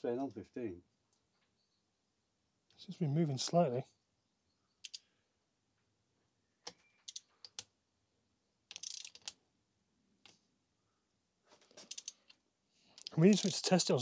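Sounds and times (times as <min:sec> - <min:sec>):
ratchet wrench clicking: 0:08.7 - 0:09.3, 0:11.9 - 0:12.2.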